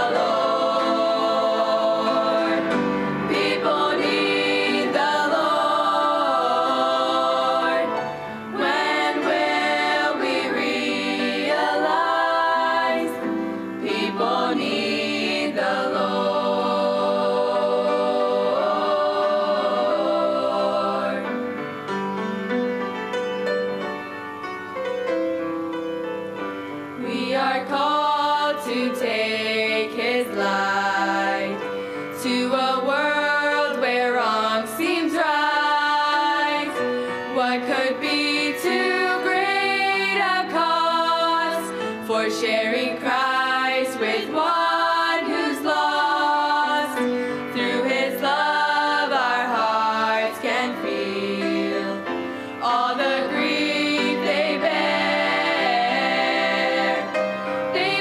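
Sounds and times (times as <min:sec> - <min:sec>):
girls singing gospel in harmony: 0:00.0 - 0:21.4, 0:27.0 - 0:58.0.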